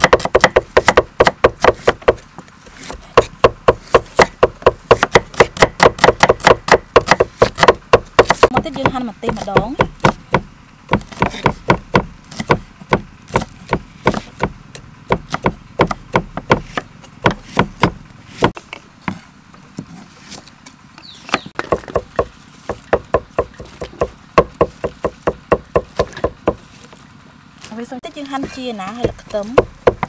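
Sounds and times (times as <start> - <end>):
knife chopping on wooden block: 0.0 - 2.2, 2.8 - 19.2, 21.3 - 26.6, 28.4 - 30.0.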